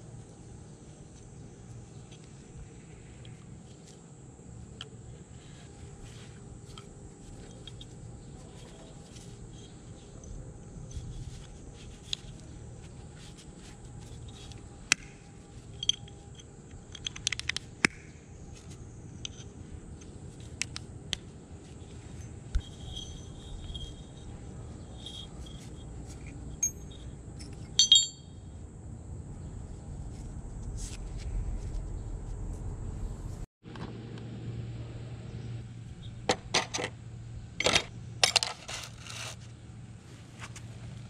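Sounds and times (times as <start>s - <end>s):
metal tools clicking and scraping: 15.7s - 17.6s, 21.9s - 28.3s, 37.6s - 39.4s.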